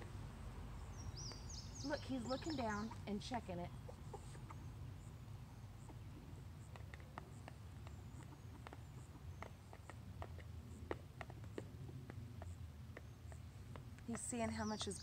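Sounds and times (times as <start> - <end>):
low steady rumble: 0.0 - 15.0
chickens pecking plastic dish: 5.8 - 14.6.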